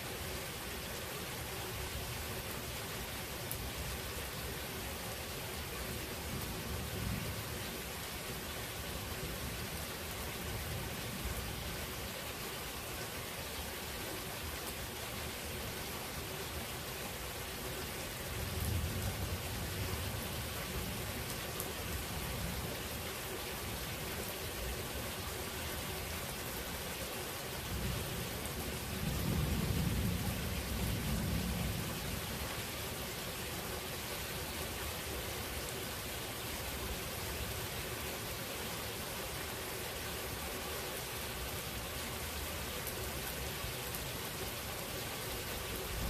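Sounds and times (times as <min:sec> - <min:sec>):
steady rain falling: 0:00.0 - 0:46.0
low rolls of thunder: 0:28.7 - 0:32.4.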